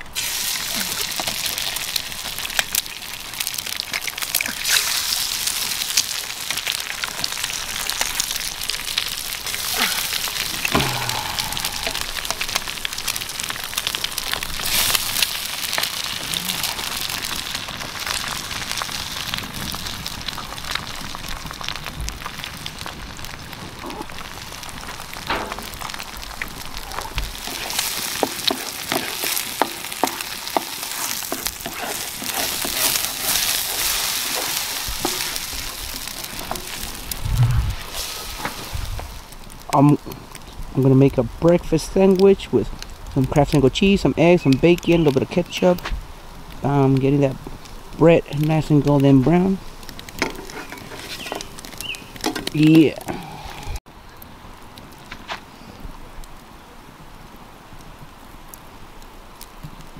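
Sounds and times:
food sizzling in a pan: 0:00.0 - 0:39.4, 0:49.4 - 0:53.8
crackles and pops: 0:00.0 - 0:59.9.

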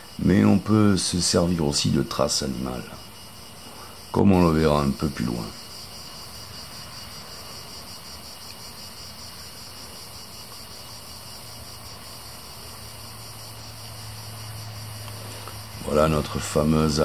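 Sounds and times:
insects chirring: 0:00.0 - 0:17.0
light hiss: 0:00.0 - 0:17.0.

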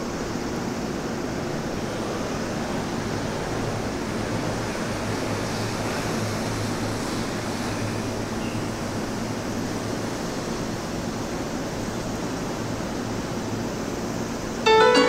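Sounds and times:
electric trains idling hum: 0:14.6 - 0:15.0.

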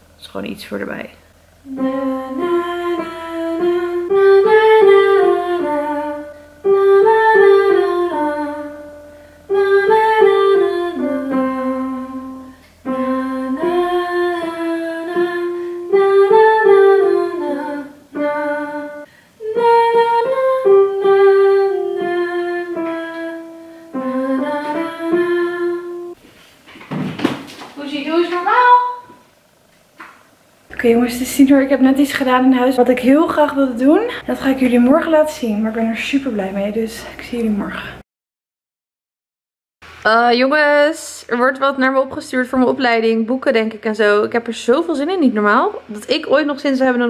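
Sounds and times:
digital piano melody: 0:15.0 - 0:19.1, 0:19.8 - 0:26.2.

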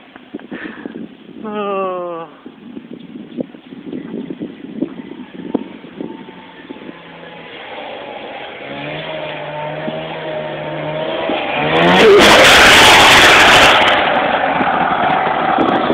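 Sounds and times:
snowmobile engine revving past: 0:05.8 - 0:14.2.

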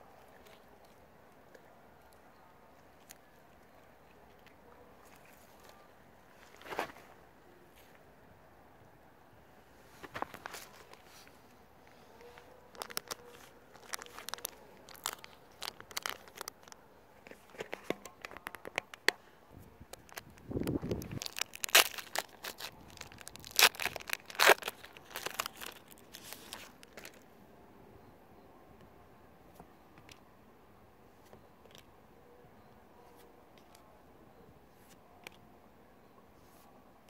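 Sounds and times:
foil pack crinkling: 0:12.3 - 0:19.0, 0:20.0 - 0:27.2.

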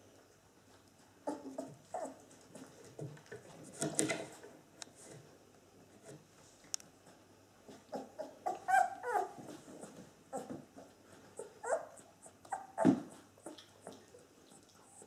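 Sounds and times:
puppies whining and squeaking: 0:01.3 - 0:02.2, 0:07.9 - 0:10.5, 0:11.4 - 0:14.1.

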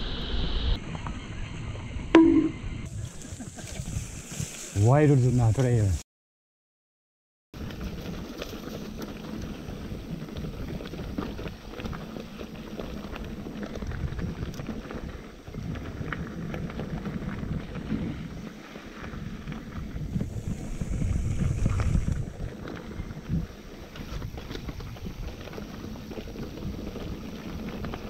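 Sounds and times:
wind rumbling on microphone: 0:00.0 - 0:05.0, 0:07.6 - 0:28.0
bike rattles and clicks: 0:07.6 - 0:28.0.

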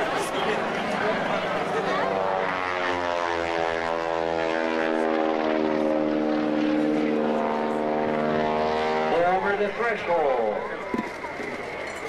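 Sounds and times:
propeller airplane engine droning: 0:00.0 - 0:12.0.

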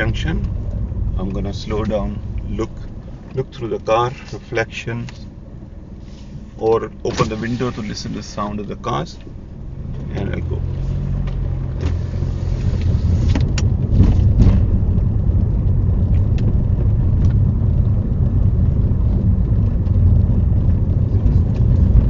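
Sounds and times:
car engine and road noise: 0:00.0 - 0:22.0.

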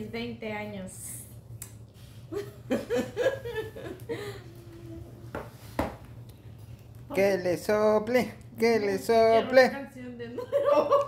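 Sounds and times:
steady low hum: 0:00.0 - 0:11.0
woman laughing softly: 0:02.3 - 0:05.3.

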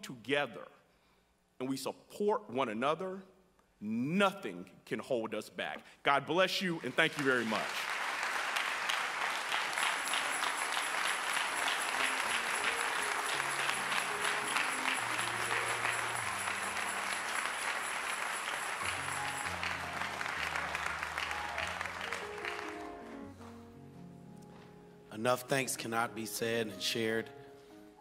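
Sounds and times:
congregation applauding: 0:06.7 - 0:23.2.

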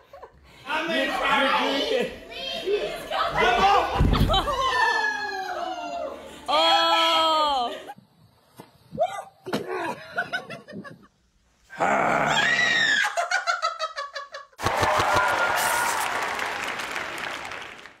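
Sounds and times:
woman screaming and laughing: 0:03.3 - 0:08.0.

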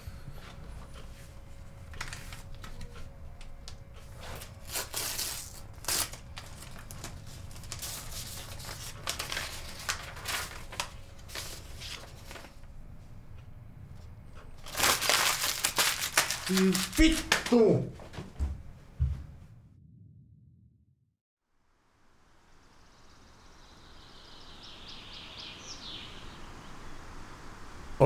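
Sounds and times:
paper rustling and tearing: 0:01.9 - 0:03.0, 0:04.1 - 0:12.7, 0:14.6 - 0:17.6.

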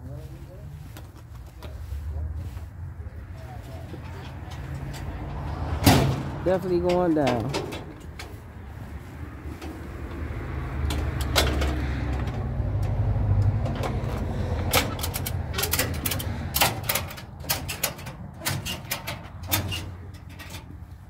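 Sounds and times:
metal chains clanking and rattling: 0:03.8 - 0:08.4, 0:10.8 - 0:13.0, 0:13.6 - 0:20.9.

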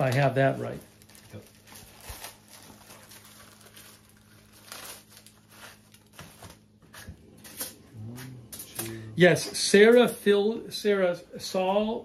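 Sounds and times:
plastic crinkling and rustling: 0:00.0 - 0:07.8
low steady hum: 0:00.0 - 0:12.0.

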